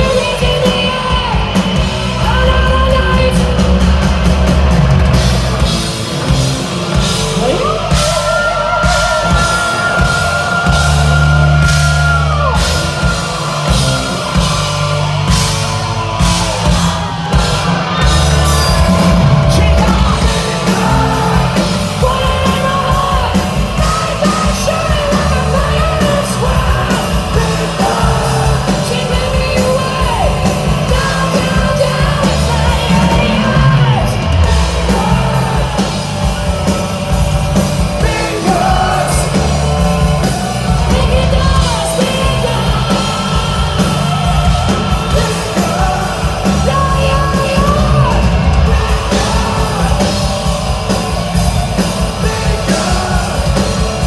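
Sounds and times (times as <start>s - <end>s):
live hard rock band: 0.0s - 54.0s
man singing yelled vocals: 18.9s - 35.9s, 38.0s - 50.4s, 52.0s - 53.8s.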